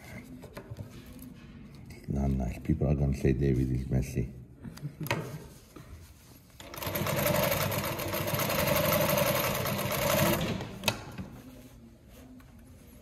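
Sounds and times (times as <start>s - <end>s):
sewing machine stitching: 6.6s - 10.8s.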